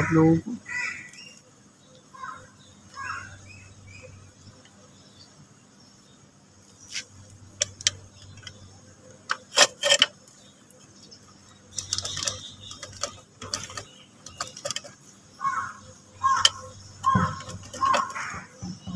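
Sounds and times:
metal tools clinking: 0:09.4 - 0:10.2, 0:11.7 - 0:15.0, 0:16.3 - 0:18.2
hand ratchet clicking: 0:11.7 - 0:15.0, 0:16.2 - 0:18.3.

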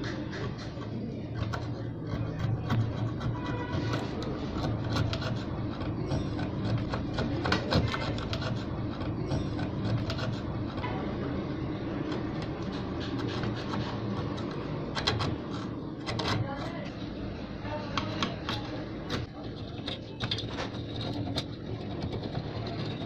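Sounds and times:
metal scraper scraping rust: 0:00.0 - 0:10.9, 0:18.2 - 0:23.0.

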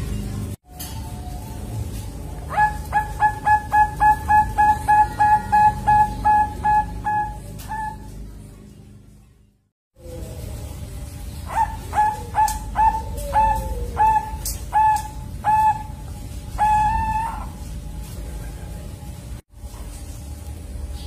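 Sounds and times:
dove cooing: 0:01.1 - 0:08.2, 0:11.5 - 0:17.7.

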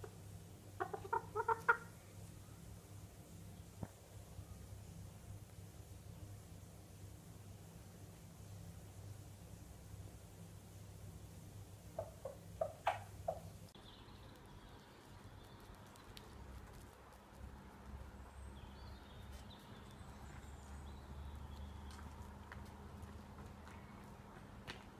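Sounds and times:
small birds chirping: 0:00.0 - 0:24.2
chicken clucking: 0:00.8 - 0:02.0, 0:11.9 - 0:13.6.

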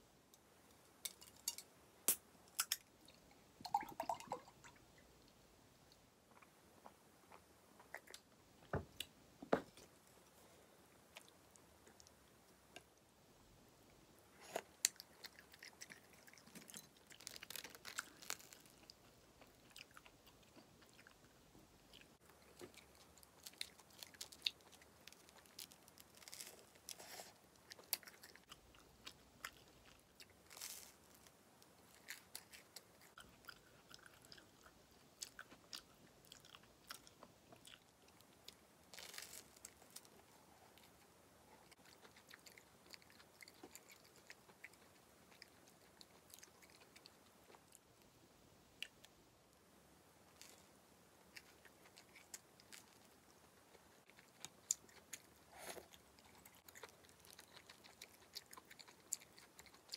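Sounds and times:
small crunches: 0:14.4 - 0:19.0, 0:38.9 - 0:40.2
person chewing food: 0:14.4 - 0:31.1, 0:31.7 - 0:47.9, 0:51.3 - 0:59.9.

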